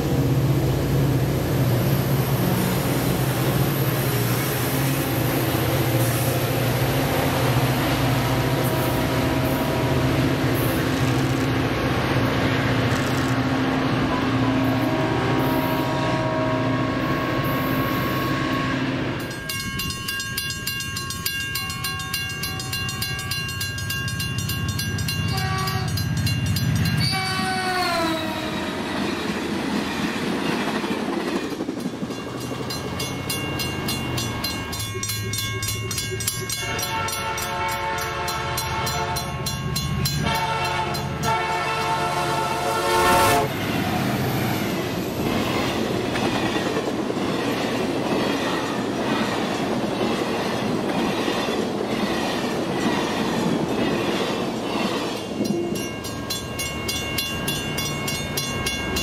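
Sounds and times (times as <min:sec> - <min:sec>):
train rumble: 0:00.0 - 0:59.0
train horn blowing: 0:08.2 - 0:10.7, 0:14.0 - 0:19.2, 0:25.3 - 0:26.0, 0:27.0 - 0:28.9, 0:36.6 - 0:39.5, 0:40.2 - 0:43.6.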